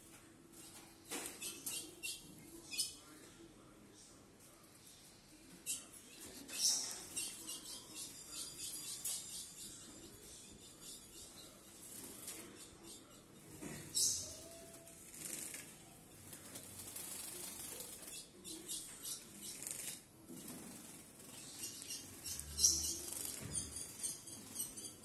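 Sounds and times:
bird flapping wings in cage: 15.1 - 18.2.

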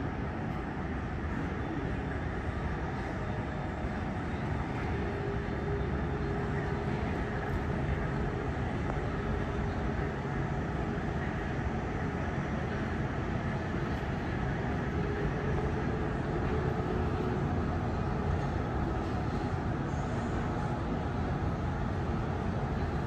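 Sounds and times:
faint hum: 0.0 - 23.0
jet engines idling: 0.0 - 23.0.

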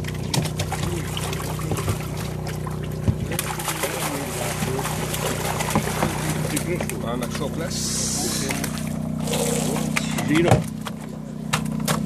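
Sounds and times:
steady motor hum: 0.0 - 12.0
water splashing and sloshing: 0.0 - 12.0.

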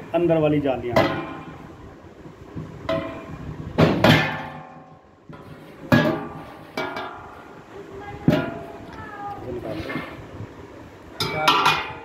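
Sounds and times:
metal plates clanking: 2.9 - 7.4, 11.2 - 12.0.

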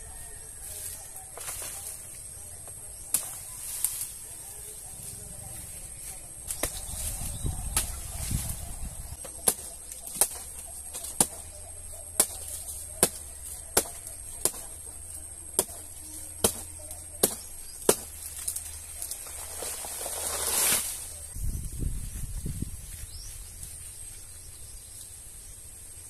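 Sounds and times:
machete chopping plant trunk: 3.0 - 4.0, 6.5 - 8.5, 9.2 - 21.0.

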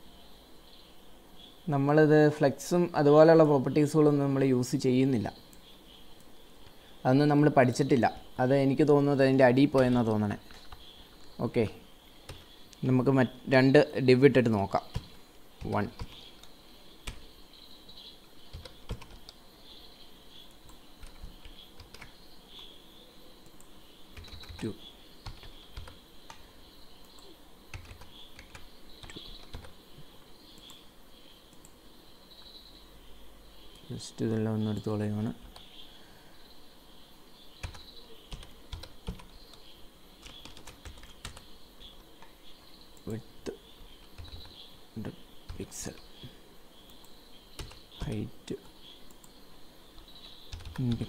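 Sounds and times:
faint steady hiss: 0.0 - 51.0
keyboard typing clicks: 18.5 - 19.4, 20.6 - 22.7, 23.4 - 26.4, 27.0 - 29.7, 37.6 - 41.5, 46.8 - 49.4, 50.0 - 51.0.

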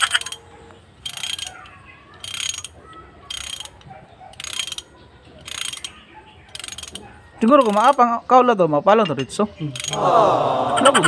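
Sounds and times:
ratchet wrench clicking: 0.0 - 0.4, 1.0 - 8.1, 9.7 - 10.0.

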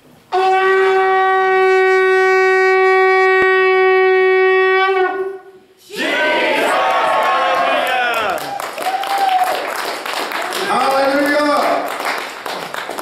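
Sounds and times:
shofar blowing long note: 0.3 - 5.6
crowd shouting: 5.9 - 9.6
crowd clapping: 6.6 - 13.0.

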